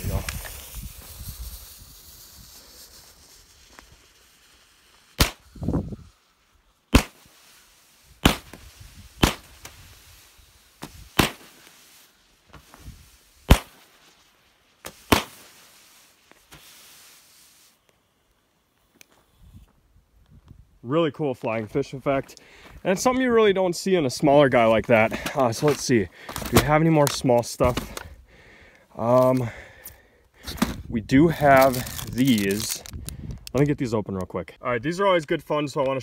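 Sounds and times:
small firework pops: 0.0s - 5.6s, 6.9s - 7.4s, 8.2s - 9.9s, 10.8s - 11.8s, 13.4s - 14.1s, 14.8s - 16.8s
firework shots: 0.0s - 5.8s, 6.9s - 14.1s, 14.8s - 16.8s
fuse hissing: 0.0s - 13.6s.

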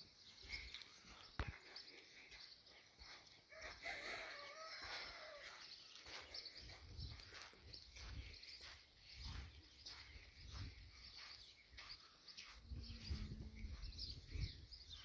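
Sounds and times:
rooster crowing faintly: 3.5s - 5.6s.

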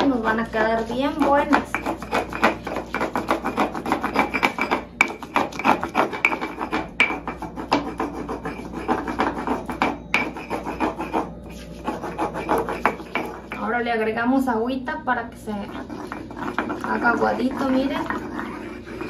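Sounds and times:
stone pestle grinding in mortar: 0.0s - 14.1s, 15.5s - 19.0s.

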